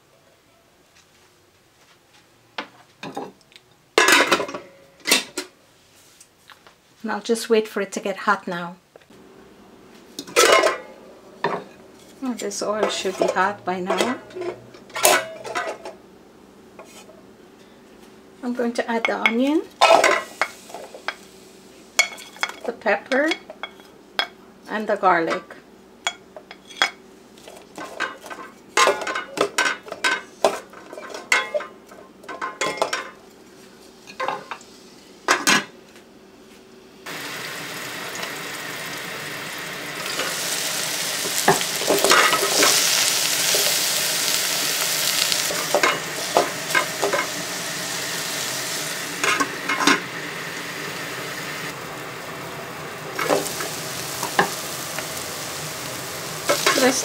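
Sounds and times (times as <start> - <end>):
vegetables sizzling in oil: 19.7 - 22.9, 37.0 - 57.0.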